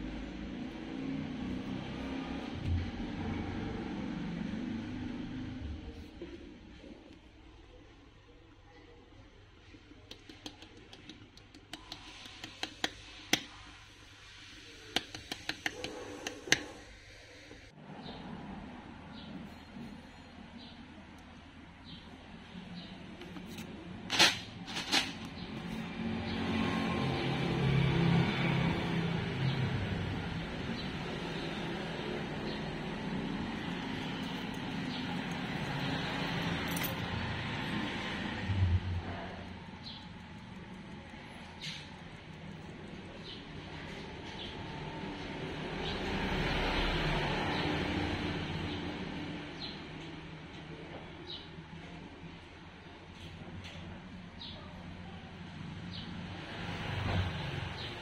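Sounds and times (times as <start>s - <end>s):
sharp clicks and taps: 10.1s - 13.5s, 14.9s - 16.7s.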